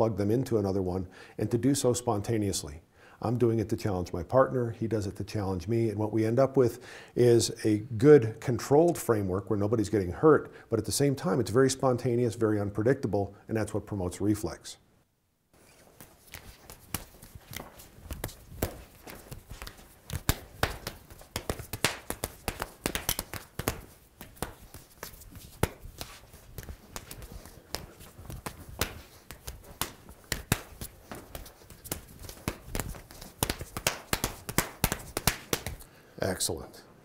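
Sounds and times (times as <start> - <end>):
shoes shuffling on floor: 15.6 - 35.8
hands slapping and tapping: 15.6 - 35.9.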